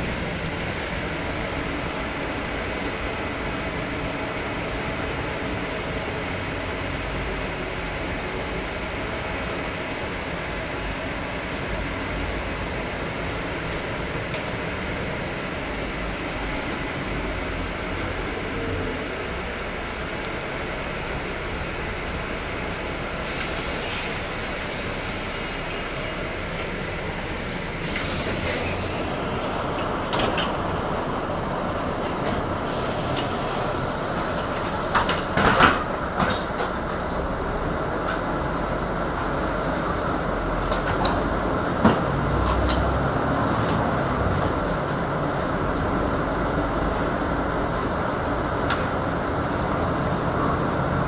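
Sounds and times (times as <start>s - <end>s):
bus running noise: 0.0s - 51.0s
high hissing: 23.2s - 25.9s, 27.8s - 30.1s, 32.6s - 36.2s.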